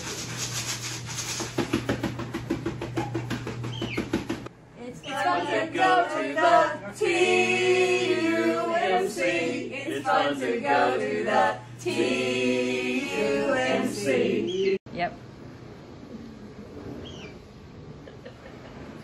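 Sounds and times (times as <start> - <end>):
group singing without accompaniment: 4.8 - 14.8.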